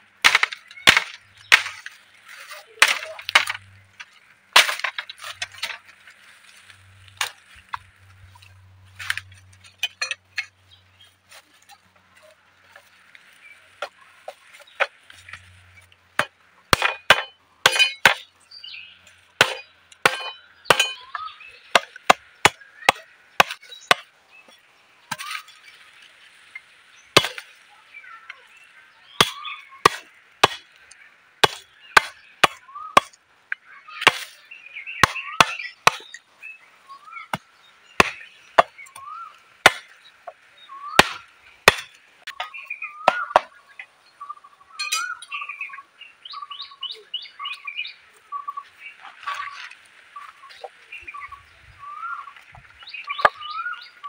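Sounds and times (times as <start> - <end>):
machete chopping bamboo: 0.2 - 2.0, 2.7 - 3.6, 4.5 - 5.8, 16.2 - 18.3, 19.4 - 24.1, 27.2 - 27.5, 29.2 - 30.7, 31.4 - 33.2, 34.0 - 34.4, 35.0 - 36.2, 38.0 - 43.6.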